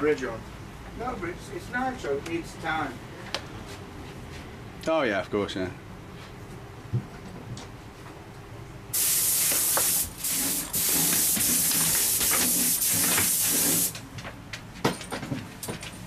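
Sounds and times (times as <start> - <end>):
compressed-air spray gun hissing: 9.0 - 14.0.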